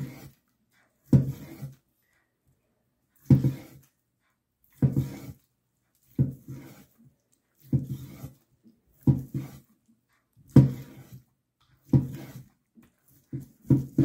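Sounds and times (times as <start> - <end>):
knife sawing through meat on board: 0.0 - 1.8, 3.2 - 4.0, 4.7 - 7.0, 7.6 - 8.4, 9.0 - 9.8, 10.4 - 14.0.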